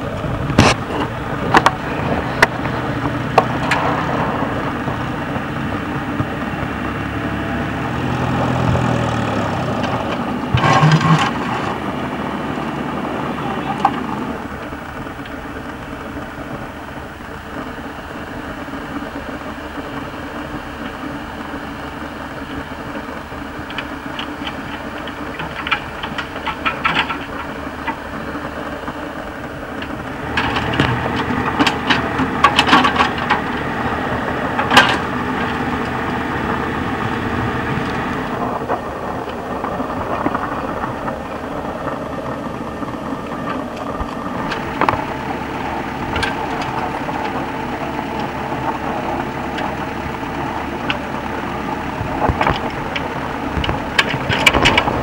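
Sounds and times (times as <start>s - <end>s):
excavator diesel engine running: 0.0s - 55.0s
metal clatter and knocks: 0.5s - 5.4s, 23.6s - 28.1s, 29.7s - 33.7s, 52.0s - 55.0s.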